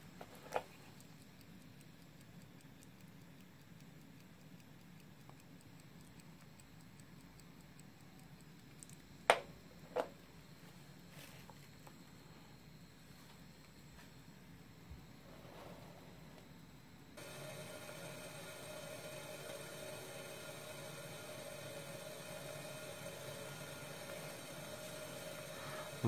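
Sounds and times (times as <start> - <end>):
stopwatch ticking: 0.0 - 14.8, 17.2 - 26.0
gas stove hiss: 0.0 - 26.0
stopwatch click: 0.6 - 9.5.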